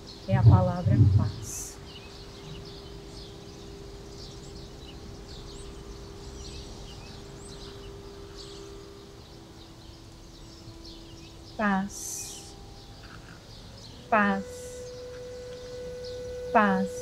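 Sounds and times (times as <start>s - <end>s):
birds chirping: 0.0s - 17.0s
wind instrument sustained note: 0.3s - 1.7s, 5.6s - 17.0s.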